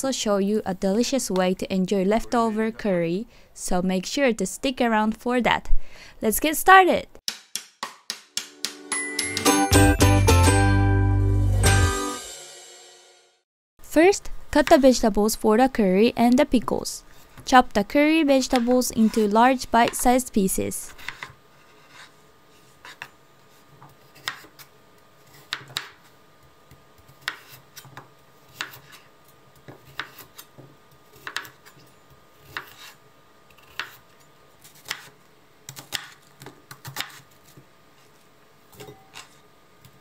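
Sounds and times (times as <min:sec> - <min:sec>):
knife chopping on cutting board: 0:07.3 - 0:08.5, 0:20.9 - 0:22.1, 0:23.8 - 0:24.6, 0:25.3 - 0:26.0, 0:27.0 - 0:29.0, 0:29.6 - 0:31.8, 0:32.4 - 0:33.0, 0:33.6 - 0:34.0, 0:34.7 - 0:37.6.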